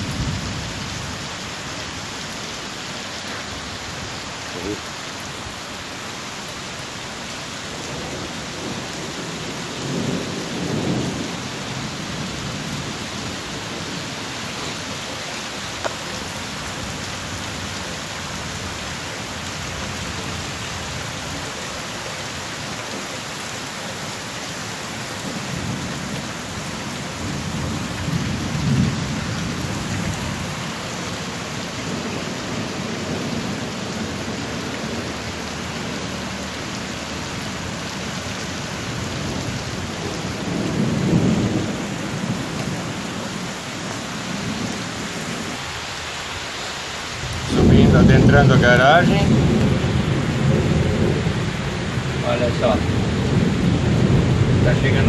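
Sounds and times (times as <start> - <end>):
heavy rain pouring on street: 0.0 - 55.0
thunder rumbling: 7.9 - 14.2, 25.3 - 30.8, 38.8 - 43.1, 47.2 - 55.0.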